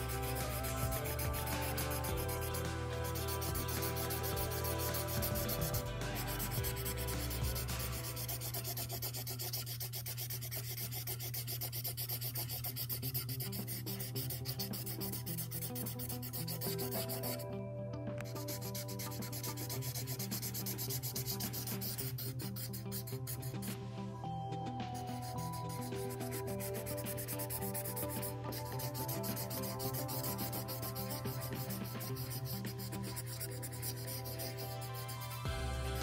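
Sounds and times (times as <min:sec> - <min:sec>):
marker scratching on paper: 0:00.0 - 0:17.5, 0:18.2 - 0:23.8, 0:24.9 - 0:36.0.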